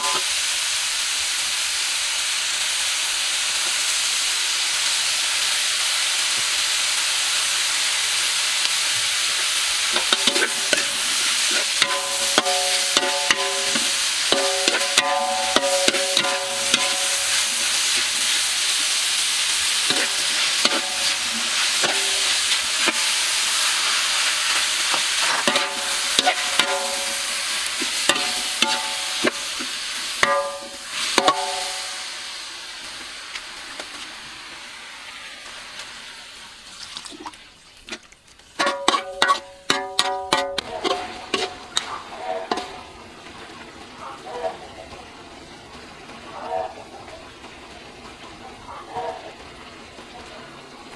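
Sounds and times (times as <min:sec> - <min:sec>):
meat sizzling in a wok: 0:00.0 - 0:37.0, 0:38.4 - 0:44.0
metal spatula clanking on wok: 0:09.9 - 0:18.3, 0:19.9 - 0:23.1, 0:24.9 - 0:32.1, 0:38.6 - 0:42.8.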